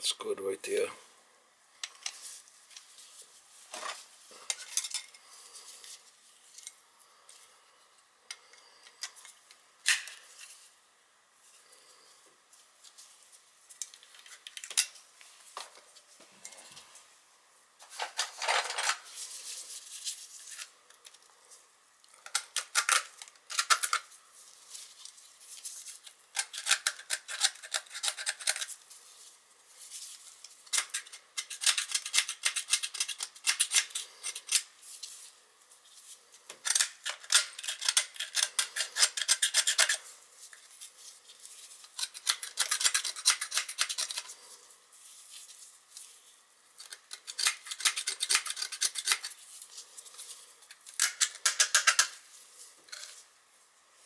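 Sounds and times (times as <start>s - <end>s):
hand tool scraping metal: 36.7s - 40.1s, 41.9s - 44.4s.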